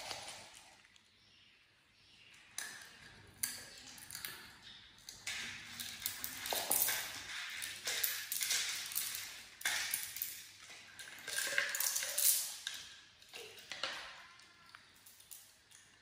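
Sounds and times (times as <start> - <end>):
seeds rattling in plastic dish: 5.7 - 10.4.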